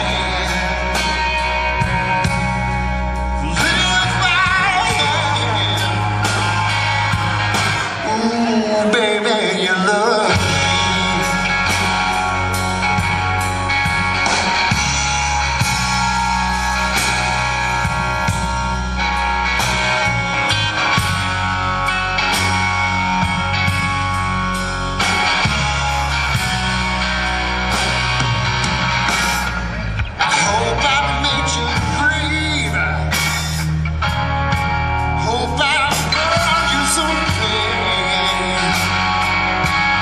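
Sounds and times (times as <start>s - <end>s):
bass guitar: 0.0s - 40.0s
blues-rock band playing: 0.0s - 40.0s
drums: 0.0s - 40.0s
electric guitar: 0.0s - 40.0s.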